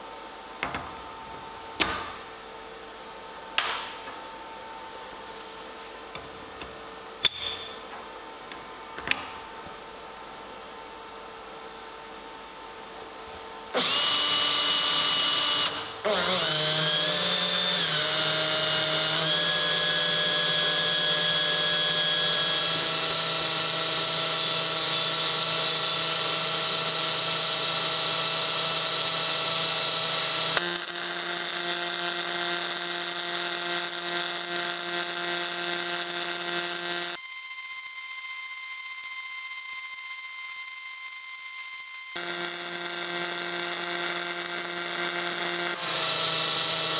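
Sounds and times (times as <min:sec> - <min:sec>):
welding arc buzzing: 0:13.7 - 0:46.9.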